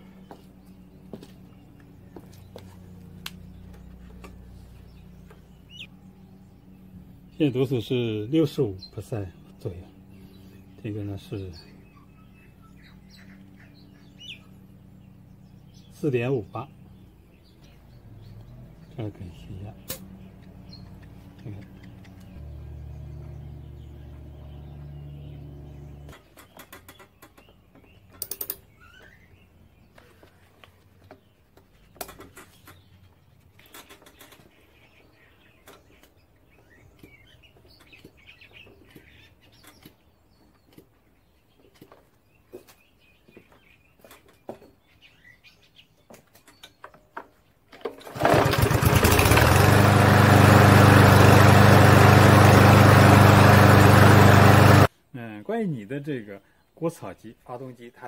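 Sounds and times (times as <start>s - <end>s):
lawn mower engine running: 0.0s - 16.0s, 19.8s - 26.2s, 47.9s - 54.9s
faint birdsong: 0.0s - 58.0s.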